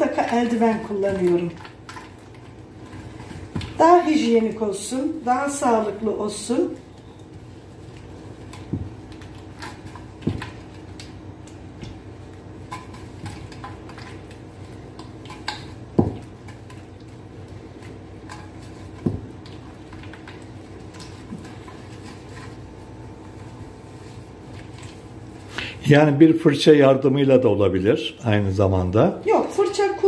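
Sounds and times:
rubbing and scraping inside metal pan: 17.8s - 25.1s.

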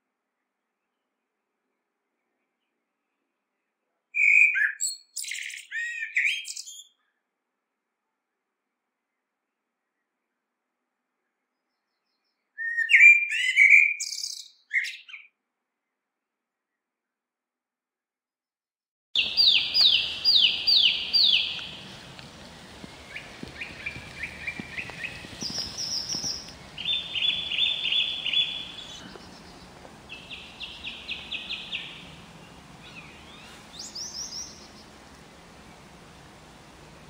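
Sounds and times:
blackbird singing: 4.2s - 7.0s, 12.0s - 15.3s, 19.2s - 36.0s.

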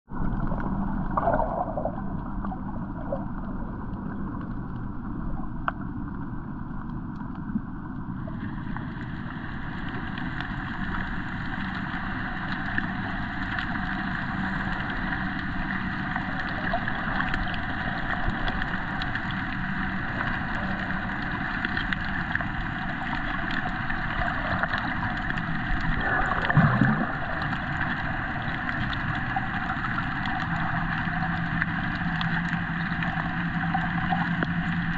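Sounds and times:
underwater water noise: 0.0s - 34.9s
faint low hum: 0.1s - 34.9s
water gurgle: 0.1s - 34.9s.

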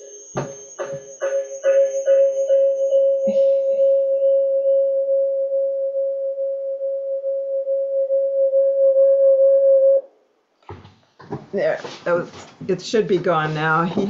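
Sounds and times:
audio feedback howl: 0.0s - 10.2s.

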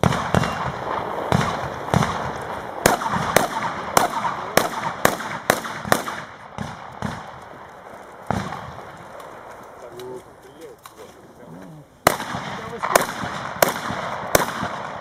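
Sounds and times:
shotgun shots with echo: 0.0s - 7.5s, 8.3s - 9.0s, 12.0s - 15.0s.

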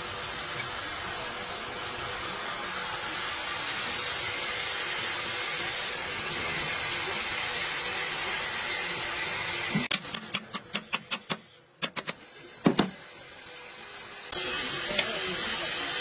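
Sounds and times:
sharp metallic clicks of hand tools: 9.8s - 12.2s.

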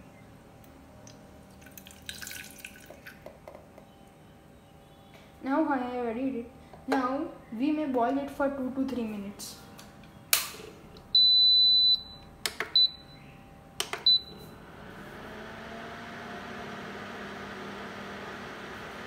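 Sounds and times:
faint hum: 0.0s - 1.8s
high beeps: 11.2s - 13.2s
cooling fan rushing air: 12.4s - 19.0s.

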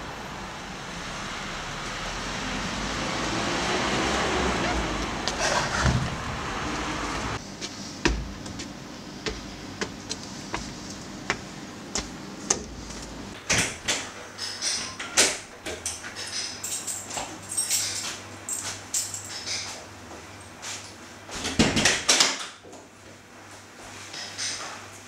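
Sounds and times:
footstep knocks: 7.6s - 13.6s.

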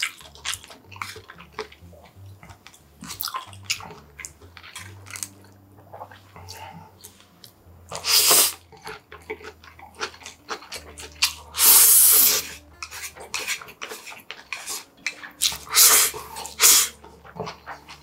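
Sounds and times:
wet chewing and smacking: 0.0s - 18.0s
person slurping noodles: 7.9s - 8.6s, 11.3s - 17.0s.

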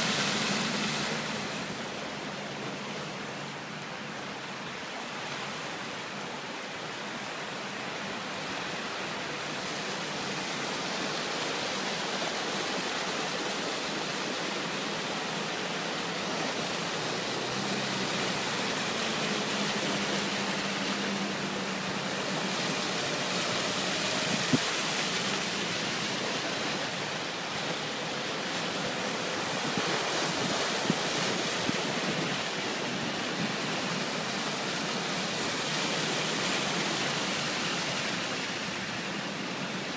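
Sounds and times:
cars splashing through water: 0.0s - 39.9s
rushing brook water: 0.0s - 39.9s
faint vehicle engine hum: 12.8s - 39.9s.

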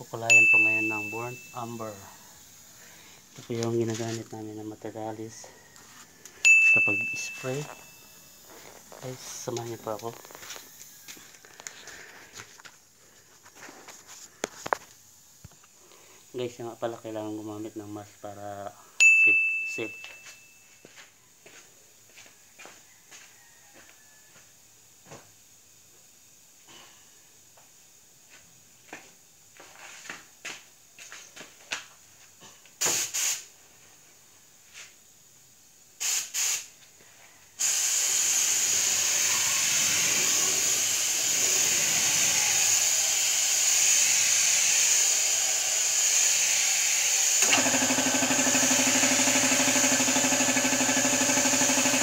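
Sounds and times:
spray gun hissing: 32.8s - 33.4s, 36.0s - 36.7s, 37.6s - 52.0s
spray gun clicks: 42.4s - 52.0s.

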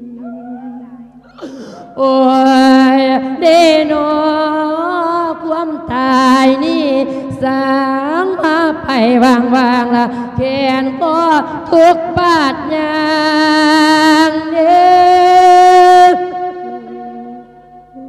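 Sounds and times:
monk chanting: 0.0s - 2.0s, 16.0s - 18.0s.

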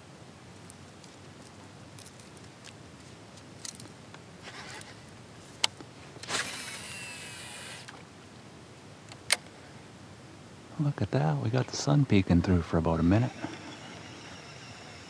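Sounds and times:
faint whine of casting brake: 3.6s - 8.0s, 10.7s - 15.0s
fishing reel spool spinning: 6.2s - 8.0s, 13.0s - 15.0s.

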